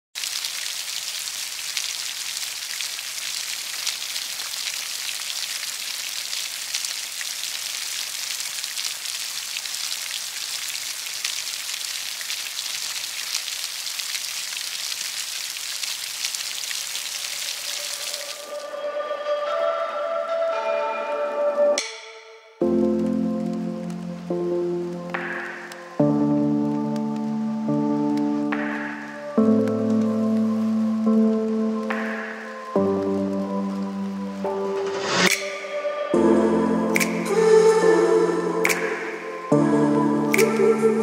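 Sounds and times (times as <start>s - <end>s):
rain on concrete and puddle: 0.2s - 18.8s, 22.6s - 41.0s.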